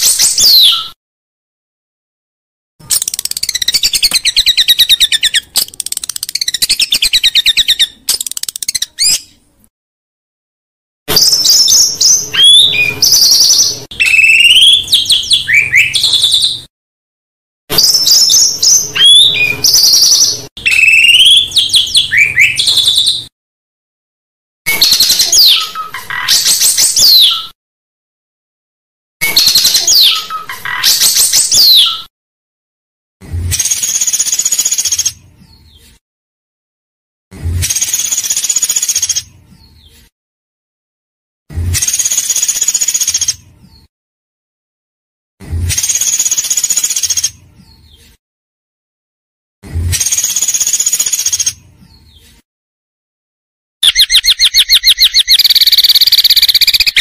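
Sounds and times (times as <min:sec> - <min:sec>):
songbird trills and whistles: 0:00.0 - 0:01.0, 0:11.1 - 0:16.7, 0:17.8 - 0:23.3, 0:24.7 - 0:27.6, 0:29.2 - 0:32.1, 0:53.8 - 0:57.0.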